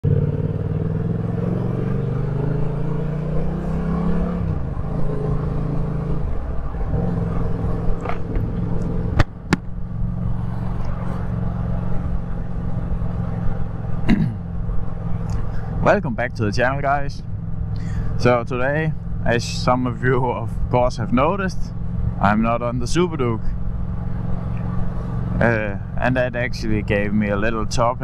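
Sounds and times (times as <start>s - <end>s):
motorcycle engine running: 0.0s - 6.2s, 6.9s - 27.8s.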